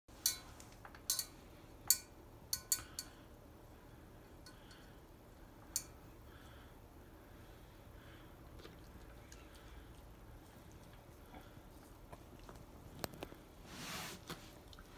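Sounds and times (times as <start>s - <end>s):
clinking in metal bowl: 0.2s - 3.2s.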